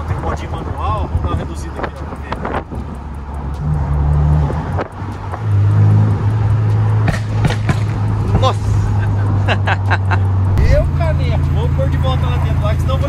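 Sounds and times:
car engine running: 0.0 - 13.0.

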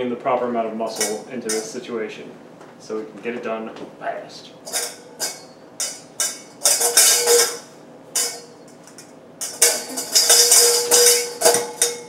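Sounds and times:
metal bowl clattering: 0.9 - 1.8, 4.7 - 12.0
metal bowl ringing: 4.7 - 12.0.

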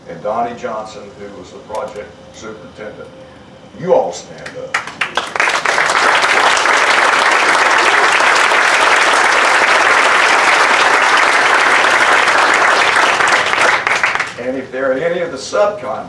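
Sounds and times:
audience applauding: 4.7 - 14.4.

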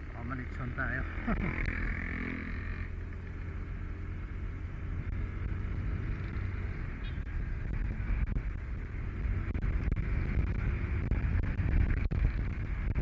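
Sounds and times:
motorcycle engine running: 0.0 - 13.0
wind on microphone: 6.2 - 13.0.

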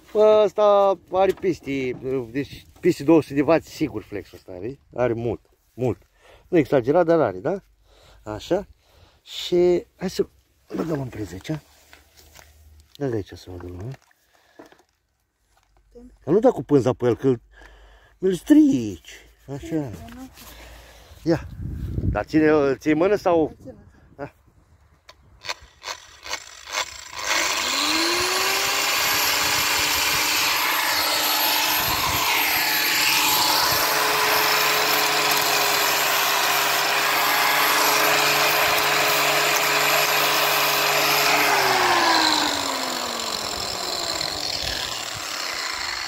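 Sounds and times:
angle grinder whining: 25.4 - 46.0.

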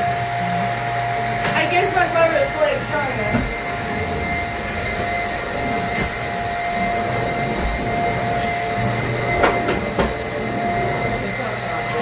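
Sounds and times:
vacuum cleaner motor running: 0.0 - 12.0.

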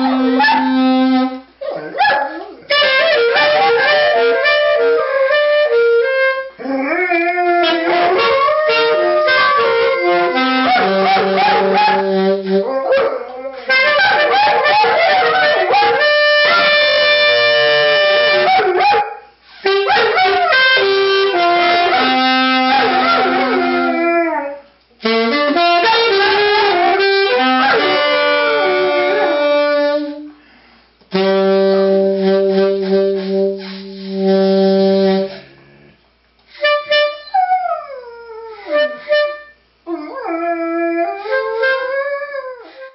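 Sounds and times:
dog howling: 0.0 - 0.9, 6.6 - 16.0, 22.6 - 24.6, 26.1 - 29.8
saxophone: 0.0 - 1.6, 2.6 - 18.8, 19.5 - 24.3, 25.0 - 30.5, 31.1 - 37.6, 38.2 - 39.6, 41.0 - 42.9.

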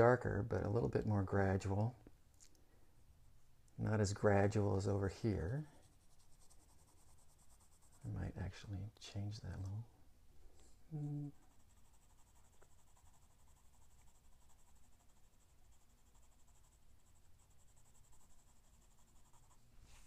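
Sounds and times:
pencil scratching on paper: 5.4 - 8.2, 11.4 - 20.0
short hummed voice: 10.9 - 11.4.

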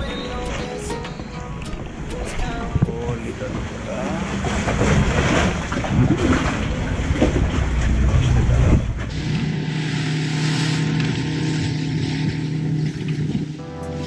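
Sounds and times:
water splashing: 0.0 - 13.6
boat engine running: 0.0 - 14.0
wind noise: 11.6 - 13.6.

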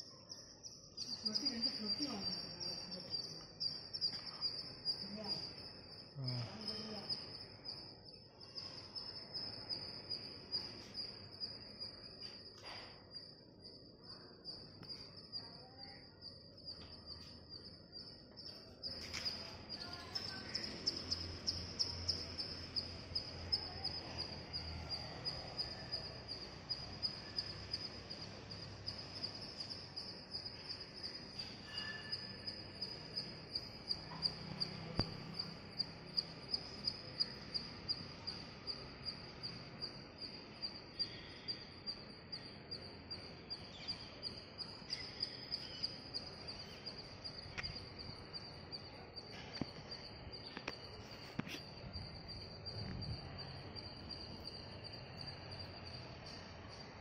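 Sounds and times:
insects trilling: 0.0 - 57.0
bird chirps: 0.1 - 5.5, 18.4 - 23.0, 42.4 - 47.8.

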